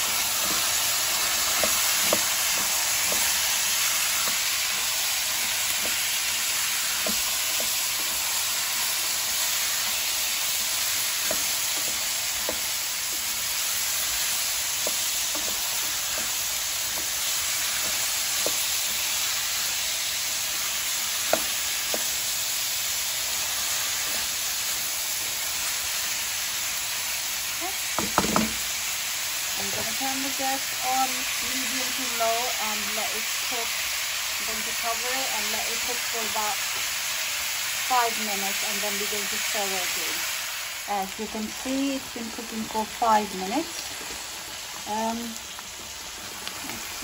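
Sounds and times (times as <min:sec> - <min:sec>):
vegetables sizzling in a pan: 0:00.0 - 0:47.0
wooden spoon knocking pan: 0:00.4 - 0:04.8, 0:10.8 - 0:19.1, 0:21.2 - 0:22.2, 0:27.9 - 0:28.6.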